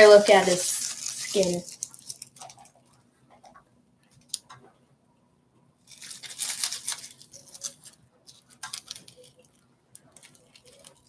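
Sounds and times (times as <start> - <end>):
snake skin crinkling: 0.0 - 3.0, 5.8 - 11.0.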